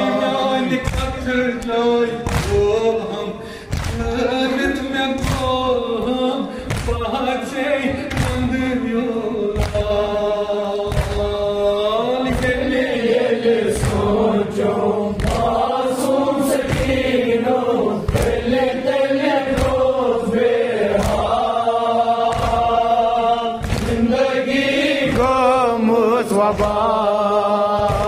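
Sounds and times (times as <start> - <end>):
men singing in chorus: 0.0 - 28.0
man chanting a dirge: 25.2 - 26.9.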